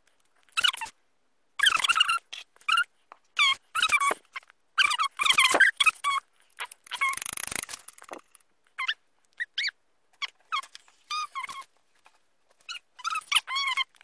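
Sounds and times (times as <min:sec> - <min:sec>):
animal squeaking whines: 0:04.8 - 0:11.7, 0:12.6 - 0:14.0.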